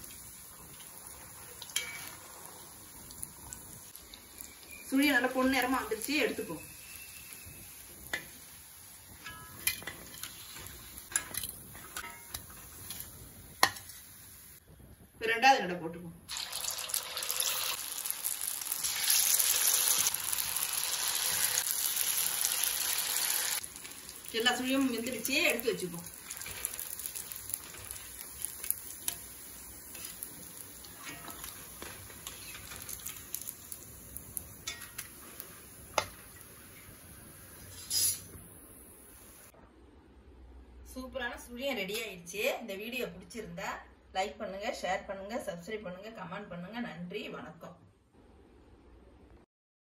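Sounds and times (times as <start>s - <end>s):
oil sizzling and popping: 0.0s - 15.1s, 16.3s - 39.6s
metal skimmer clinking on pan: 9.2s - 13.0s, 34.6s - 35.2s.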